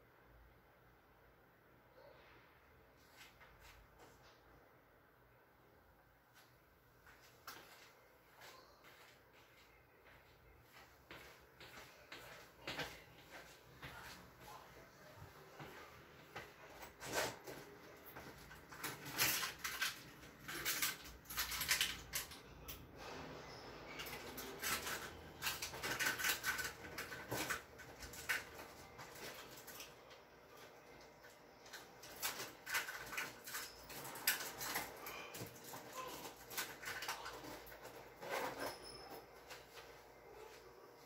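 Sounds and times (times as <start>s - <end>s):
kitchen items clattering on counter: 24.0s - 29.7s.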